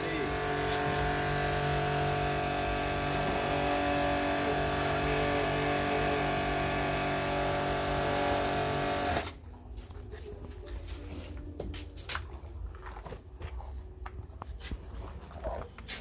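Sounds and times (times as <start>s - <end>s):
pressure washer motor hum: 0.0s - 9.4s.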